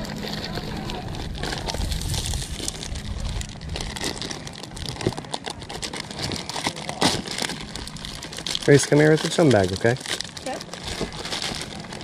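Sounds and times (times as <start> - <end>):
low rumble: 0.0 - 8.7
plastic bag crinkling: 0.0 - 12.0.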